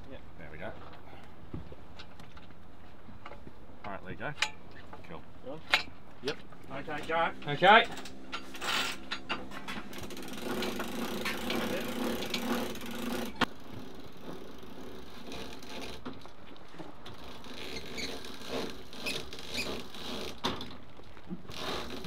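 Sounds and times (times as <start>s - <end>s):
winch whirring and clicking: 5.7s - 22.0s.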